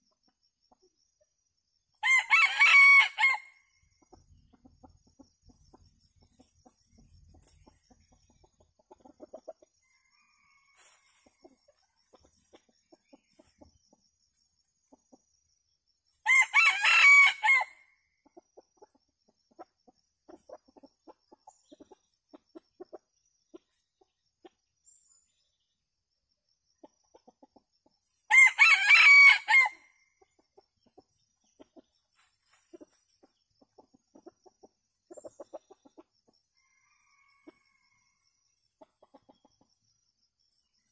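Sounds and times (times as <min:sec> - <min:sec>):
rooster crowing: 0:02.0 - 0:03.5, 0:09.9 - 0:11.2, 0:16.2 - 0:17.8, 0:28.3 - 0:29.9, 0:36.6 - 0:38.2
hens clucking softly: 0:03.8 - 0:15.6, 0:18.2 - 0:24.8, 0:26.6 - 0:28.3, 0:30.1 - 0:40.0.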